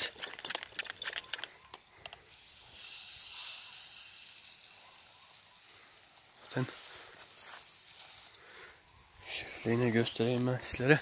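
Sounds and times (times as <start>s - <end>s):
rustling: 0.0s - 8.7s.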